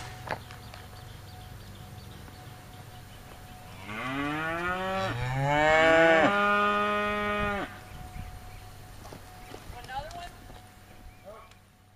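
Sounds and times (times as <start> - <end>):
cow mooing: 3.8 - 7.8.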